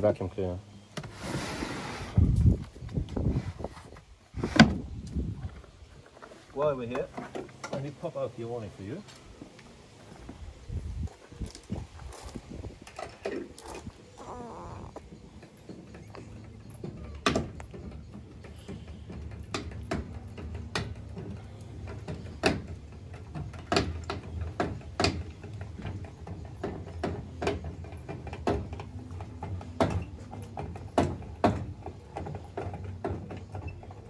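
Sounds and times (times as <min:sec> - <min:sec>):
crank gearbox clicks and knocks: 0:15.0 - 0:34.0.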